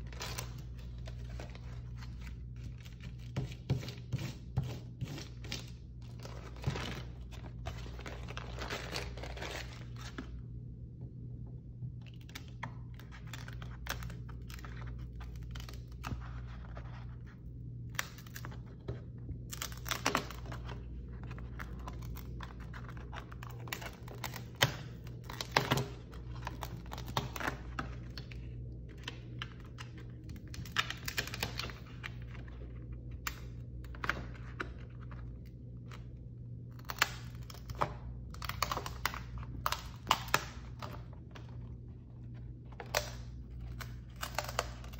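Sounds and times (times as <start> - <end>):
paper rustling and crinkling: 0.0 - 10.5, 12.1 - 44.9
steady low hum: 0.0 - 44.9.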